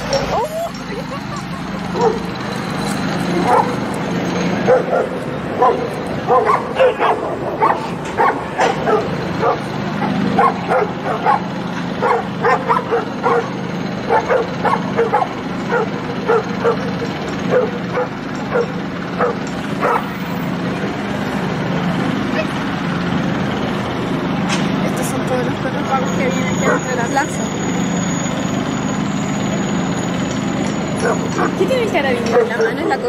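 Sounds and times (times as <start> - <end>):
dogs barking: 0.0 - 20.5, 26.5 - 27.0, 30.9 - 33.0.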